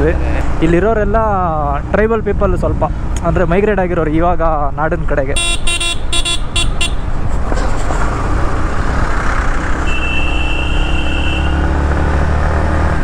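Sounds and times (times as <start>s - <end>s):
vehicle horn short blasts: 5.4s - 7.0s, 9.8s - 11.6s.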